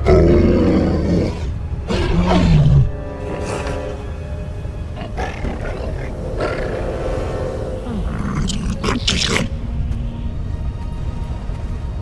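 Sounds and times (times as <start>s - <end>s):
background film music: 0.0s - 12.0s
alien creature calls: 5.0s - 9.5s.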